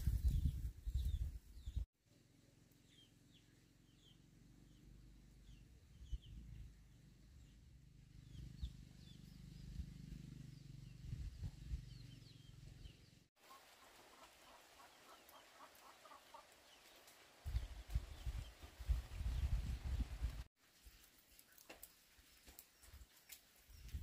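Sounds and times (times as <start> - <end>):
small birds chirping faintly: 0.1 - 24.0
low rumble with thumps: 5.4 - 13.0
chickens clucking: 13.5 - 16.7.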